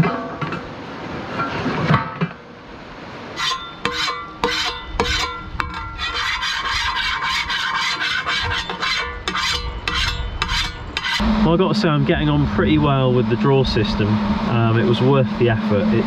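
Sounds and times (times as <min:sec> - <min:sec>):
metal spatula scraping a pan: 0:03.4 - 0:11.2.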